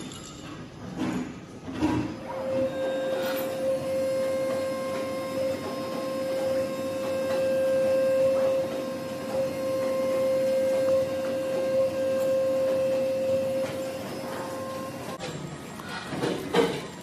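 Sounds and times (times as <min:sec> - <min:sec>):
fabric cutting machine humming: 0:02.4 - 0:15.2.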